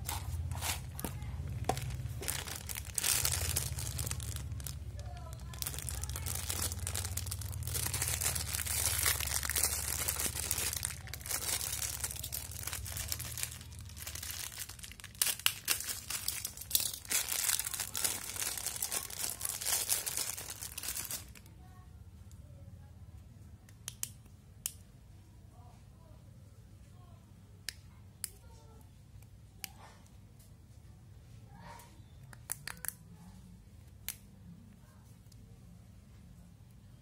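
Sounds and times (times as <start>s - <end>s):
plastic bags crinkling: 0.0s - 21.5s.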